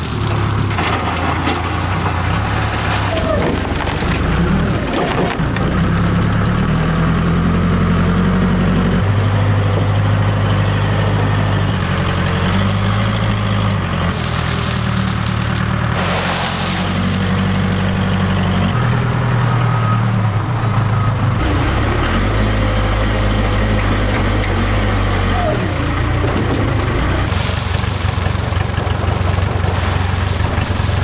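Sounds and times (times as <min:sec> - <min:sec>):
gravel pouring from bucket: 0:00.0 - 0:00.8, 0:11.7 - 0:13.0, 0:14.1 - 0:17.3, 0:27.3 - 0:28.7, 0:29.7 - 0:31.0
diesel engine running: 0:00.0 - 0:31.0.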